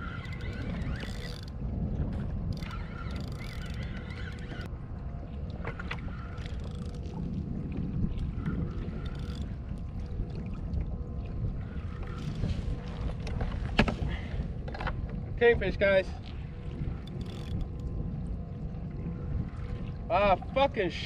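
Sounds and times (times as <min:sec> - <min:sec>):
fishing reel clicks: 0:00.0 - 0:01.6, 0:02.5 - 0:04.7, 0:06.4 - 0:07.0, 0:09.0 - 0:09.5, 0:17.0 - 0:17.9
water lapping around kayak: 0:00.0 - 0:21.0
wind: 0:00.0 - 0:21.0.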